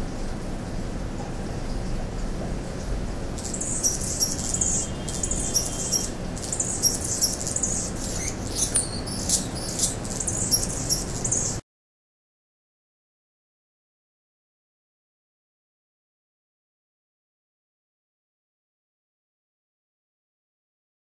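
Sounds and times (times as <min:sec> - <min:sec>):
hummingbird singing: 0:03.4 - 0:11.6.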